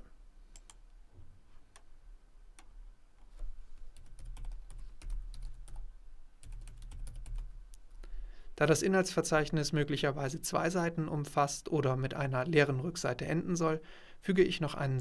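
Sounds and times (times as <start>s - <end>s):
typing on computer keyboard: 4.0s - 7.5s.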